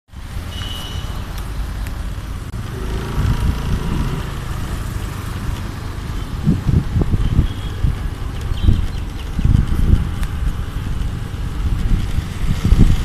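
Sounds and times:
motorbike engine rumble: 0.2 - 13.0
wind buffeting microphone: 2.5 - 13.0.

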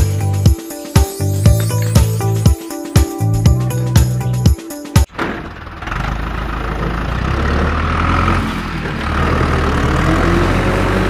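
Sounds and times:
heavy engine idling: 5.1 - 10.3.

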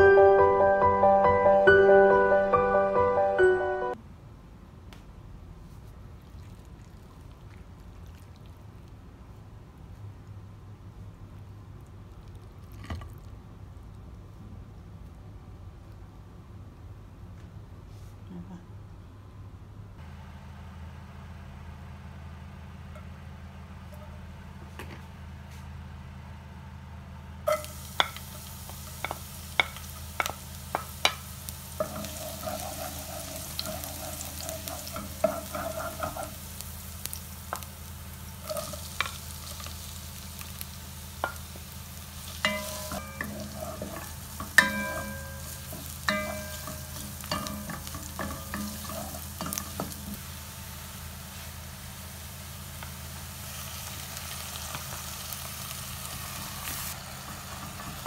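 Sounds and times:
onion sizzling in hot oil: 27.5 - 58.0.

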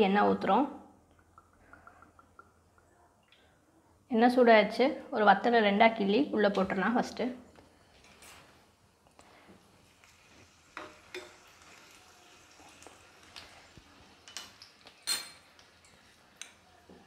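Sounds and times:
chillies sizzling in hot oil: 9.3 - 17.0.

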